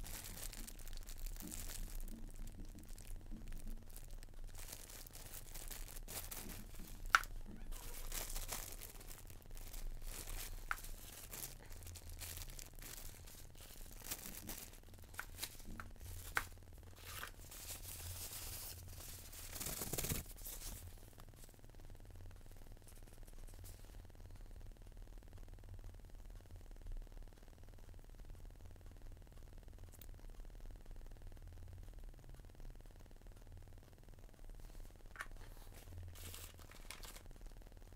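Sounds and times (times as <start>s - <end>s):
plastic bags crinkling: 0.0s - 20.9s, 35.2s - 37.3s.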